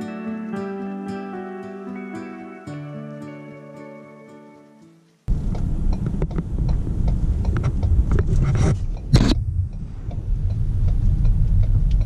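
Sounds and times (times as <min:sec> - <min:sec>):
light ticks: 0:05.3 - 0:12.0
road and engine rumble: 0:05.3 - 0:12.0.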